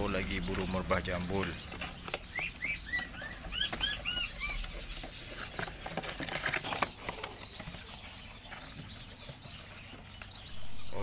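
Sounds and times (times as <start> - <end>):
bird chirping: 0.0 - 11.0
faint high-pitched bird chirping: 0.0 - 11.0
cardboard box rustling and scraping: 3.6 - 9.8.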